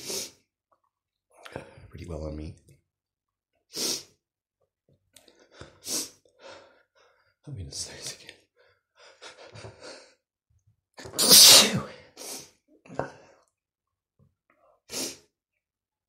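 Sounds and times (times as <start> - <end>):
man sneezing loudly: 11.1 - 12.4.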